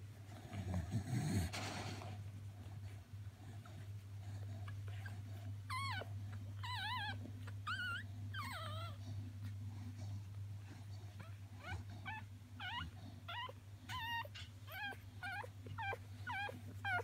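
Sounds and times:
steady low hum: 0.0s - 17.0s
puppy squealing: 11.6s - 17.0s.

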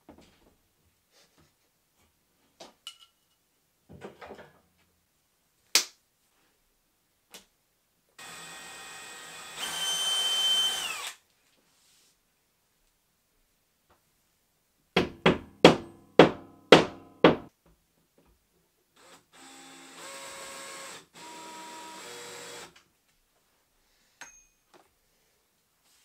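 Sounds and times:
cordless drill running: 8.2s - 11.2s, 19.0s - 22.8s.

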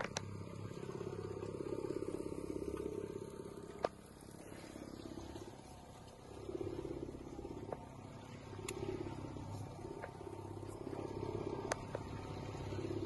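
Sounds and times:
light ticks: 0.0s - 0.4s, 2.7s - 3.0s, 8.6s - 10.9s, 11.6s - 12.2s
boat motor pulsing: 0.0s - 13.0s.

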